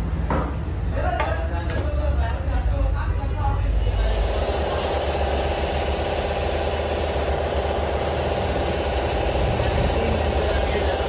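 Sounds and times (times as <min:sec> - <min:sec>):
motor droning: 0:03.7 - 0:11.0.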